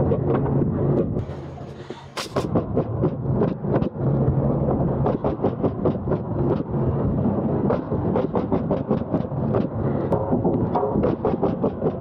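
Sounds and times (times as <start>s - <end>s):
steady low hum: 0.0s - 12.0s
nail gun shots: 2.1s - 2.5s.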